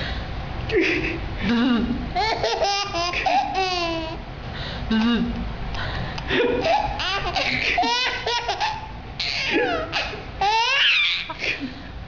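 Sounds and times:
baby laughing: 0:02.2 - 0:04.2, 0:06.3 - 0:11.6.

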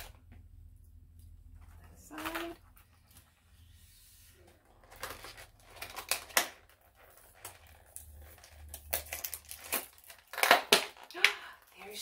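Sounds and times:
wrapping crackling and rustling: 0:04.4 - 0:12.0.

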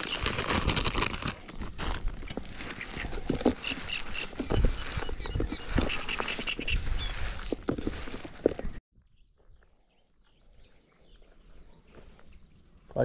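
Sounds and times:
birds chirping: 0:02.7 - 0:07.5, 0:09.0 - 0:13.0.

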